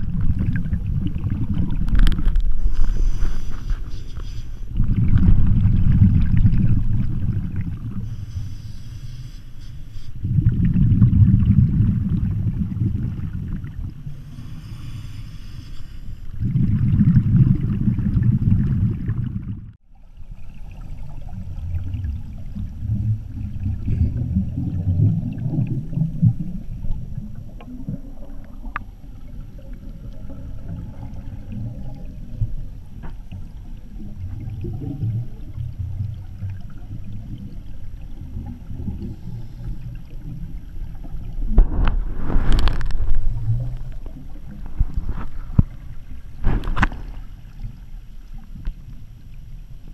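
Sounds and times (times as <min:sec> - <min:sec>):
muffled low bubbling: 0:00.0 - 0:08.2, 0:10.1 - 0:14.4, 0:16.3 - 0:49.9
inhalation hiss: 0:02.6 - 0:04.7, 0:08.0 - 0:10.2, 0:14.1 - 0:16.3
bubbling exhalations underwater: 0:04.7 - 0:08.0, 0:10.2 - 0:13.9, 0:16.4 - 0:19.8.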